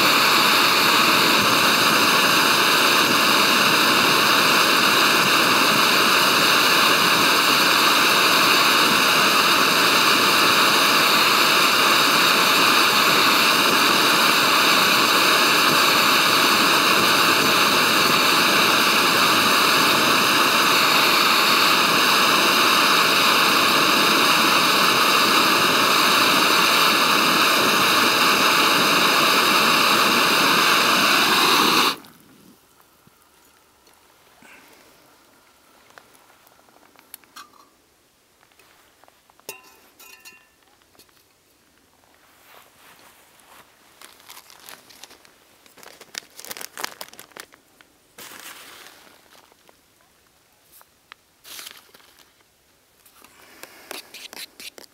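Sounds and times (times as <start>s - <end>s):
gas stove hissing: 0.0s - 37.8s, 53.0s - 54.9s.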